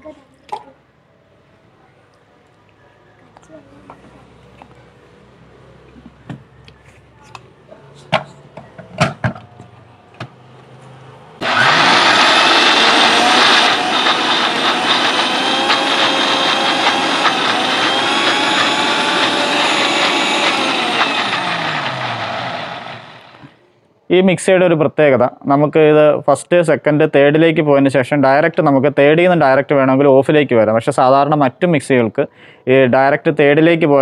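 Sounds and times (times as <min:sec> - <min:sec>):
mixer grinder motor whining: 0:11.4 - 0:23.6.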